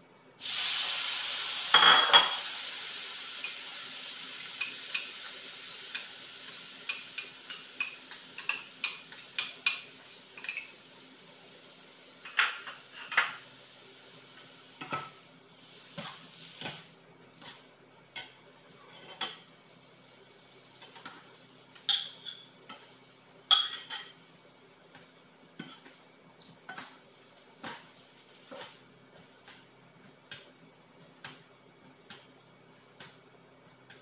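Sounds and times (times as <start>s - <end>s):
tongs clinking and scraping on wok: 4.5s - 10.7s.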